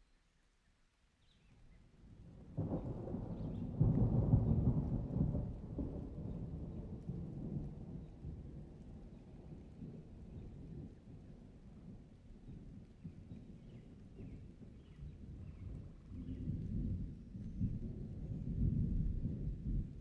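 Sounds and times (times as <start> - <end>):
thunder rumbling: 2.6 - 11.1, 15.4 - 20.0.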